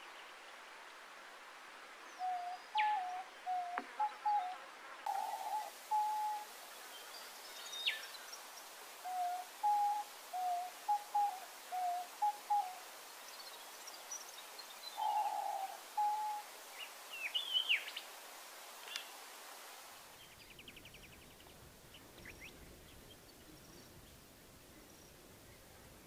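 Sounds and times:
doves cooing: 2.2s - 6.5s, 9.0s - 12.8s, 15.0s - 16.5s.

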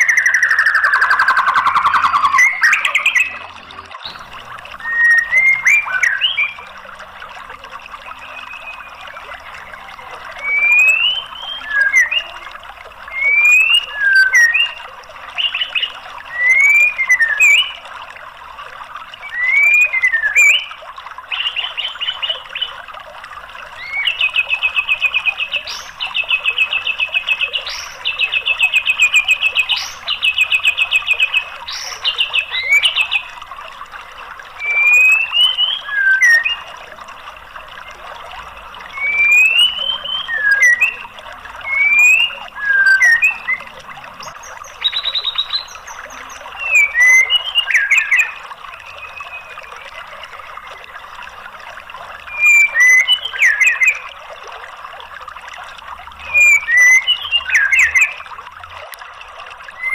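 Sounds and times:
bird singing trills and whistles: 0.0s - 6.7s, 8.1s - 12.5s, 13.1s - 17.9s, 19.2s - 22.8s, 23.8s - 33.4s, 34.5s - 36.9s, 38.9s - 50.9s, 52.2s - 54.2s, 56.2s - 58.3s.

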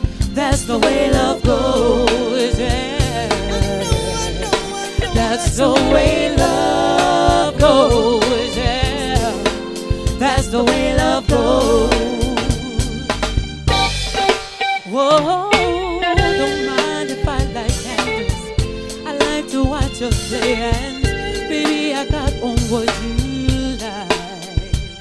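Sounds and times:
woman singing soul song: 0.0s - 13.2s, 14.8s - 24.9s
drums: 0.0s - 25.0s.

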